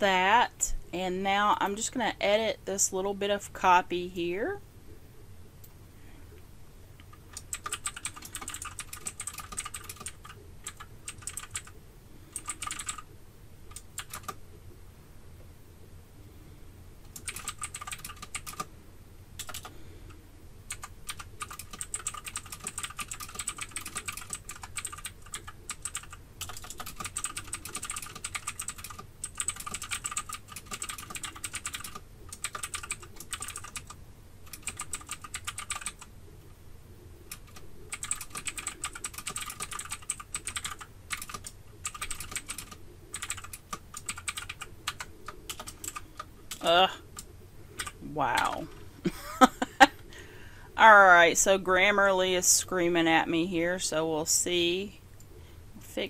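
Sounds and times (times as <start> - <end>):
typing on computer keyboard: 7.0 - 13.1, 13.7 - 14.4, 17.1 - 18.7, 19.4 - 19.8, 20.7 - 36.1, 37.3 - 48.6.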